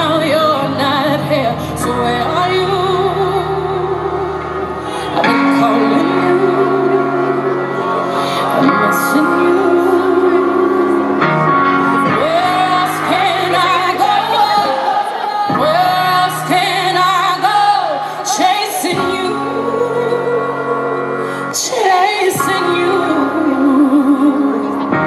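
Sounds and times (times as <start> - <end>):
band playing steady chords: 0.0 - 25.0
woman singing long gliding notes: 0.0 - 25.0
crowd whooping: 12.1 - 17.8.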